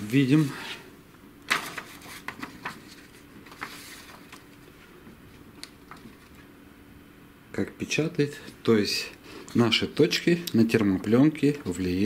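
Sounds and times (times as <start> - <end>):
paper rustling: 1.5 - 6.5.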